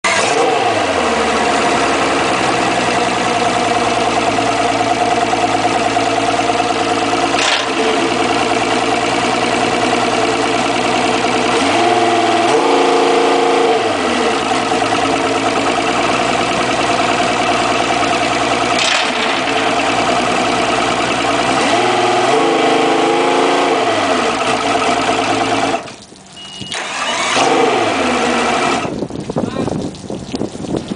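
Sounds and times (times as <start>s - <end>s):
outboard motors idling and revving: 0.0s - 29.6s
engine starting: 0.1s - 0.7s, 7.4s - 7.8s, 18.8s - 19.5s, 26.7s - 28.9s.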